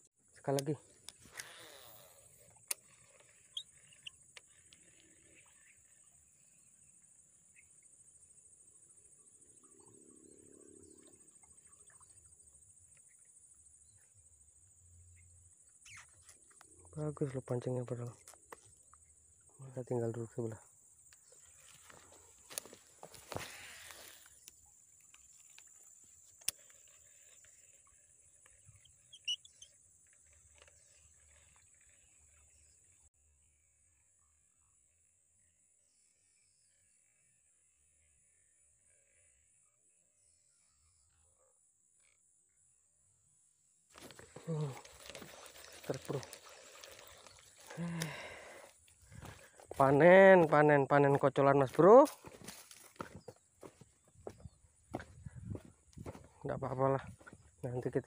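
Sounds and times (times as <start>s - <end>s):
high-pitched insect buzz: 1.1s - 7.7s, 21.2s - 32.4s
faint bird chirps: 1.4s - 18.2s, 18.8s - 42.4s, 44.1s - 51.0s, 52.7s - 58.0s.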